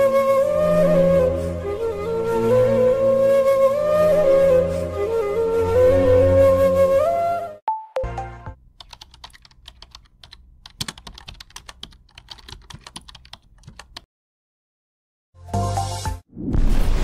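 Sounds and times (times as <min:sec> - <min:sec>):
keyboard typing clicks: 0:08.8 - 0:14.1.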